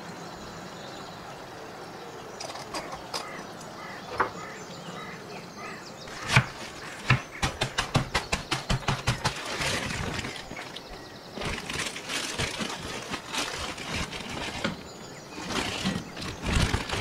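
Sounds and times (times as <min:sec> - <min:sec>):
plastic bag crinkling: 0:09.3 - 0:17.0.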